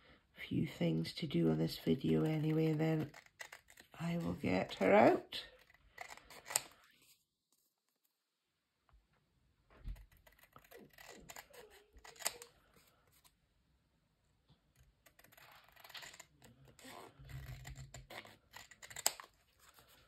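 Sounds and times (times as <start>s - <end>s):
scissors snipping card: 2.2s - 6.8s, 10.0s - 12.6s, 17.4s - 19.3s.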